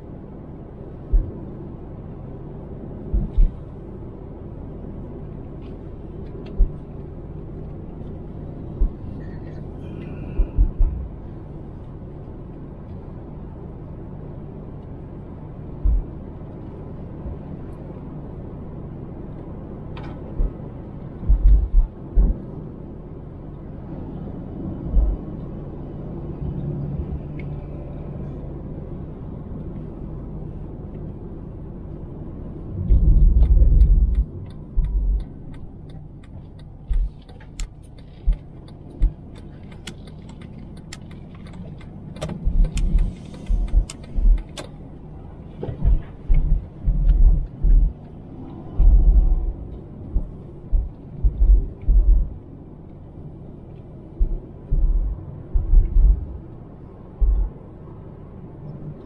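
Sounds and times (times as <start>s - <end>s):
car cabin road rumble: 0.0s - 59.0s
low heavy thumps: 45.6s - 48.0s, 48.7s - 52.4s, 54.2s - 56.4s, 57.2s - 57.5s.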